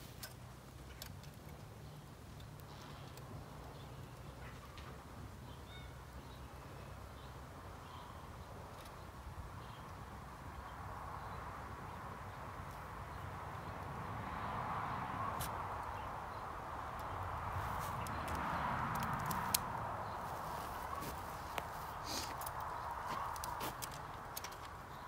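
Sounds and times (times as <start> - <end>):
chicken wire clicks: 17.9 - 19.8, 22.3 - 24.9.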